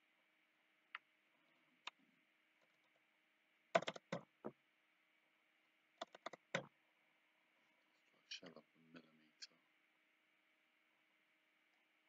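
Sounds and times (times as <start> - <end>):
keyboard key presses: 3.8 - 4.3, 6.0 - 6.7
mouse clicking: 3.8 - 4.3, 6.0 - 6.7.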